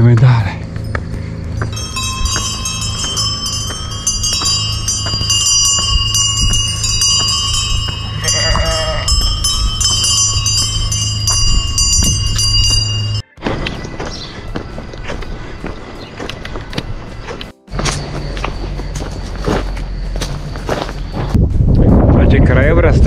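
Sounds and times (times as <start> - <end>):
sheep bells clanking: 0.6 - 21.3
sheep bleating: 8.2 - 9.2.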